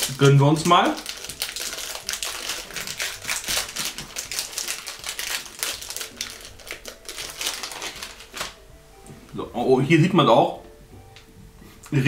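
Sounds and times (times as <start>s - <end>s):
snack wrapper crackling: 0.0s - 8.6s.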